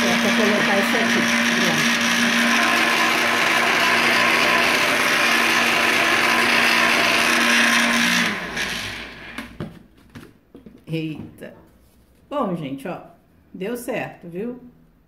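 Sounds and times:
motor winding down: 0:00.0 - 0:09.5
blender grinding bread: 0:00.0 - 0:09.6.

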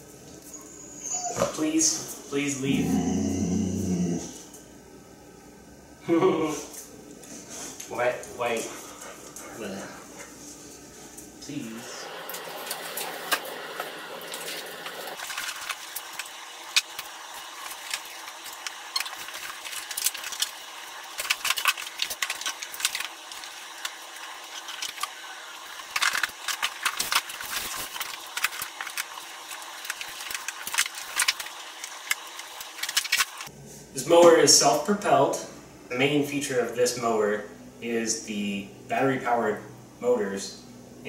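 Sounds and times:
packing material crinkling: 0:14.4 - 0:33.5.

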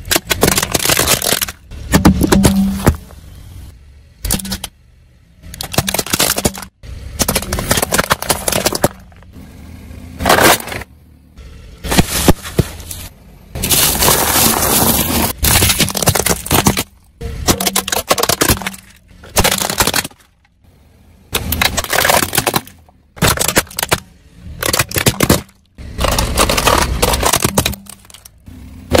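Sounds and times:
plastic toys cracking: 0:00.0 - 0:02.6, 0:05.5 - 0:09.4, 0:13.6 - 0:20.5, 0:21.3 - 0:29.0
rolling tyre rumble: 0:00.0 - 0:29.0
crisp snacks crunching: 0:24.6 - 0:28.3.

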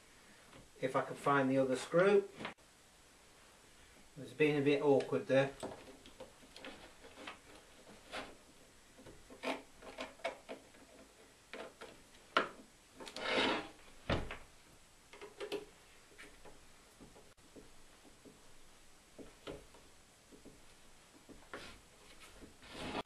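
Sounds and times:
scraping on wooden bench: 0:05.7 - 0:08.5, 0:12.4 - 0:14.3, 0:21.3 - 0:23.0
thump on bench: 0:14.1 - 0:14.4.

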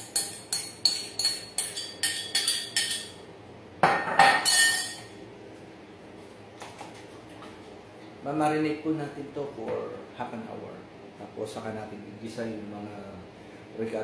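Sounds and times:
utensil clinking against pot: 0:00.0 - 0:03.2, 0:03.9 - 0:05.1.

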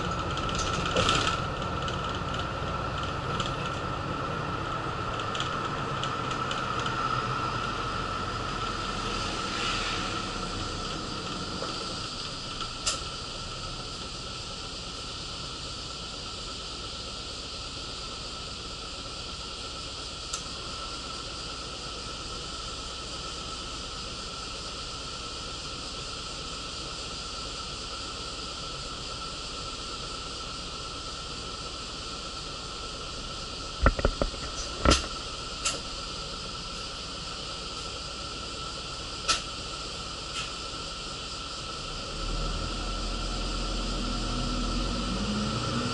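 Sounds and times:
bus running noise: 0:00.0 - 0:45.9.

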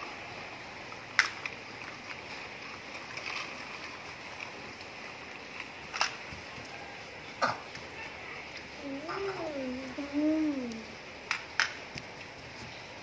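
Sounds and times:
background hiss: 0:00.0 - 0:13.0
plastic toys clicking: 0:01.1 - 0:01.6, 0:05.9 - 0:06.6.

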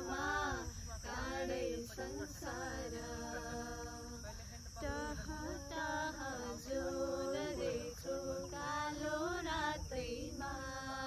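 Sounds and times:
women singing chant-like melody: 0:00.0 - 0:11.0.

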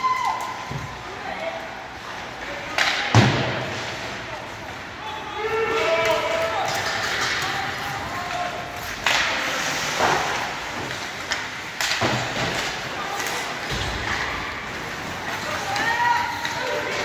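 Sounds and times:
arena noise: 0:00.0 - 0:17.0
people shouting: 0:05.0 - 0:08.6, 0:15.4 - 0:17.0
puck and sticks knocking on boards: 0:08.9 - 0:14.4.

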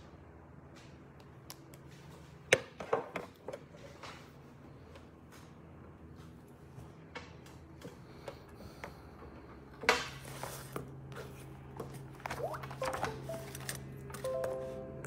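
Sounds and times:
low hum: 0:11.3 - 0:15.0.

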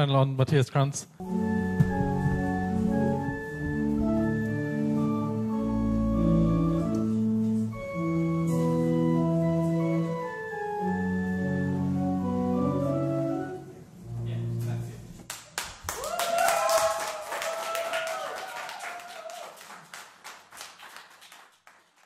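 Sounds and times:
deep organ bass note: 0:01.2 - 0:08.3
theatre organ playing chords: 0:01.2 - 0:15.1.

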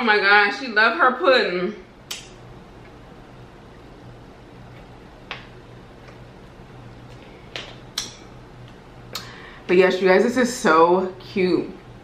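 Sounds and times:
sharp click: 0:02.1 - 0:02.4.

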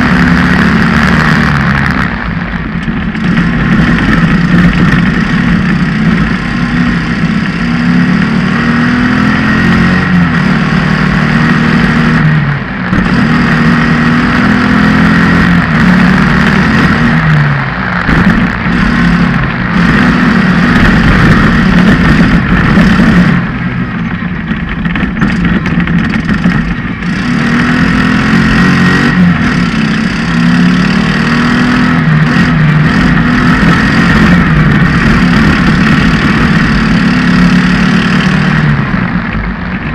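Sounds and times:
race buggy engine revving: 0:00.0 - 0:39.9.

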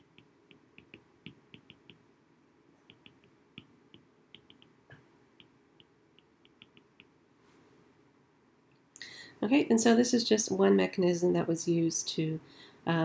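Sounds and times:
stylus tapping on glass screen: 0:00.1 - 0:02.0, 0:02.9 - 0:07.1.

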